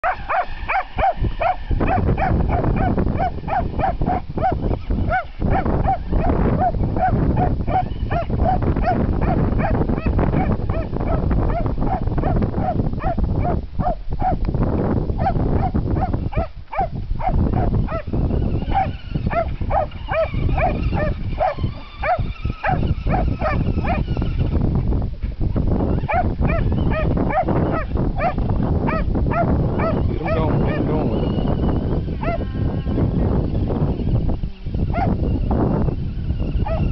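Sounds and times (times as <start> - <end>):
dog barking rapidly: 0.0 - 14.4, 15.2 - 24.1, 26.0 - 31.4, 32.2 - 32.5, 34.9 - 35.2, 36.6 - 36.9
constant low rushing noise: 0.0 - 36.9.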